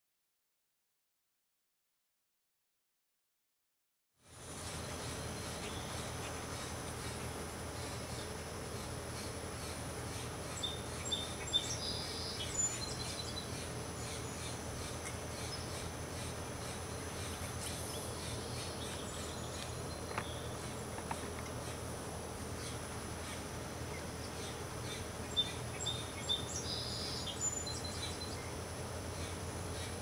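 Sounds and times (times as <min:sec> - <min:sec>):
background hiss: 0:04.2 - 0:30.0
faint high whine: 0:04.2 - 0:30.0
bird chirps: 0:07.8 - 0:20.8, 0:22.6 - 0:28.6.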